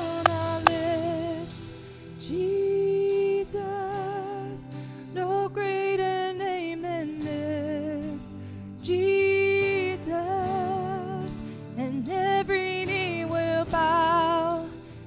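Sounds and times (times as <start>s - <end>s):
instrumental accompaniment: 0.0s - 5.2s
person singing with vibrato: 0.0s - 14.8s.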